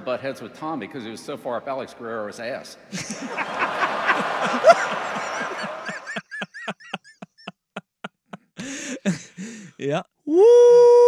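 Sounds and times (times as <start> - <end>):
crowd laughing loudly: 2.9 - 9.6
man's high wheezing laugh: 2.9 - 9.8.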